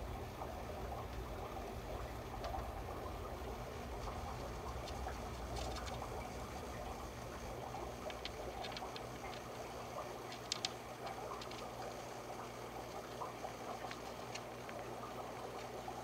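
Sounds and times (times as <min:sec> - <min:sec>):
steady low hum: 0:00.0 - 0:16.0
hamster rustling in wood shavings: 0:03.5 - 0:06.7, 0:07.6 - 0:12.0, 0:13.0 - 0:16.0
small crisp clicks: 0:07.9 - 0:09.6, 0:10.3 - 0:12.0, 0:13.1 - 0:14.9.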